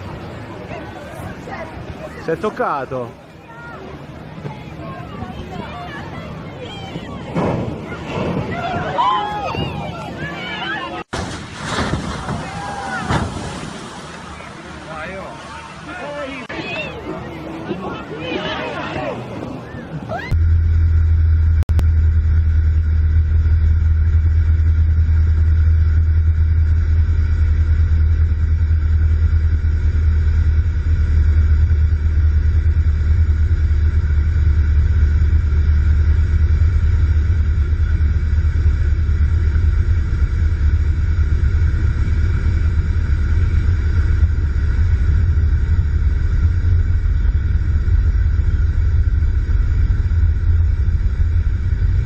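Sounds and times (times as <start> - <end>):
propeller plane cabin drone: 19.3 - 52.0.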